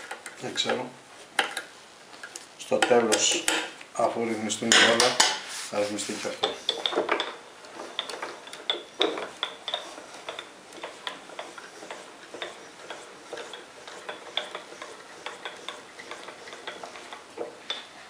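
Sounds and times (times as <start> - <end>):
lathe table clicking on rails: 2.3 - 3.8, 4.6 - 5.4, 6.3 - 18.0.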